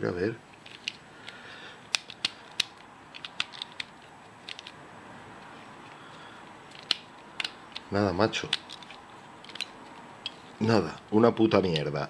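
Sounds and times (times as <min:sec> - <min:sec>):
plastic puzzle pieces clicking: 0:00.5 - 0:04.8, 0:05.9 - 0:10.4.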